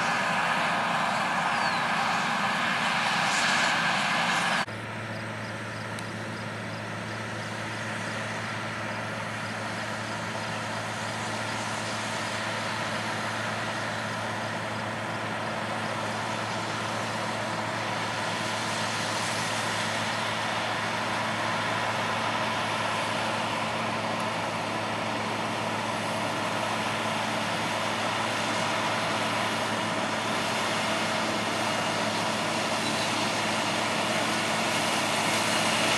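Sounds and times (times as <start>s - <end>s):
broad rushing noise: 0.0s - 5.0s, 5.9s - 35.9s
combine harvester engine drone: 0.0s - 35.9s.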